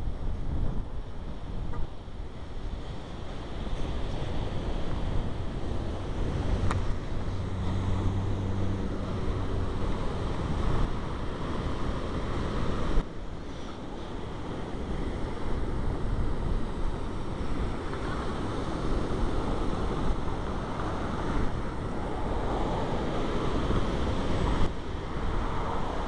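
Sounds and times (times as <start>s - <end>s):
wind buffeting microphone: 0.0s - 26.0s
street traffic: 5.8s - 12.2s
vehicle engine humming: 5.9s - 11.2s.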